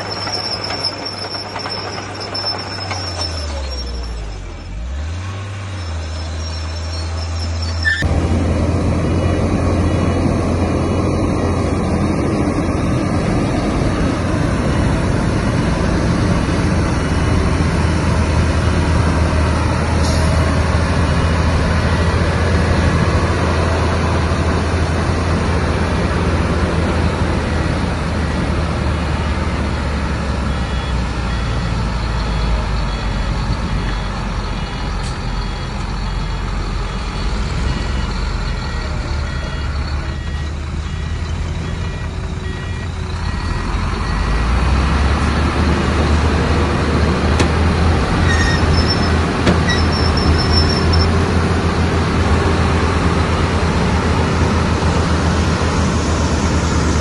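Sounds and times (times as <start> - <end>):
heavy diesel engines running: 0.0 - 57.0
reversing alarm beeping: 30.4 - 46.1, 48.3 - 51.2.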